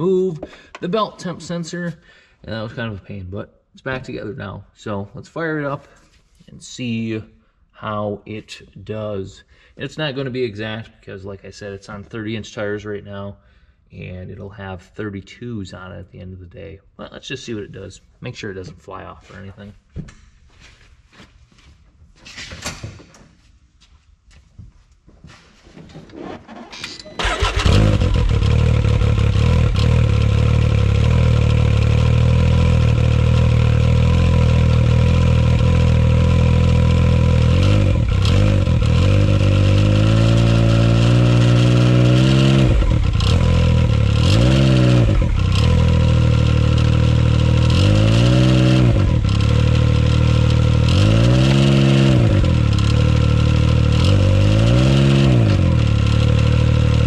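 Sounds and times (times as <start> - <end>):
engine cranking and starting: 26.2 - 29.8
engine idling and revving: 27.2 - 57.0.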